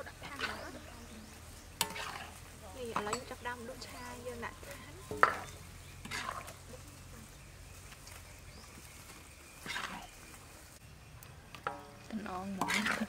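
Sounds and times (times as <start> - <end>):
metal spatula scraping wok: 1.7 - 6.6, 9.6 - 10.2, 11.6 - 13.0.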